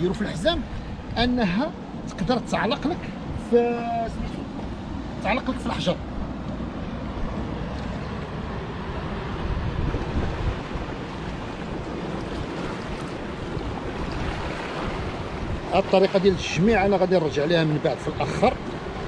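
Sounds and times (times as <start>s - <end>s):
surf washing over rocks: 0.0s - 19.0s
wind buffeting microphone: 0.0s - 19.0s.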